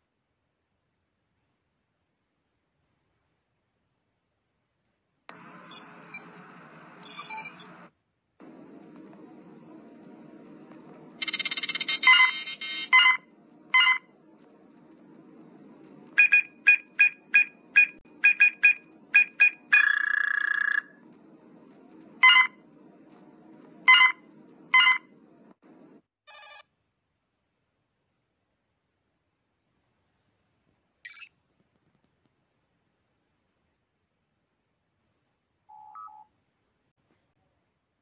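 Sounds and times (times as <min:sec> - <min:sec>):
warbling computer chirp: 0:05.6 - 0:07.9, 0:17.0 - 0:21.1
short keypad beeps: 0:11.2 - 0:13.2.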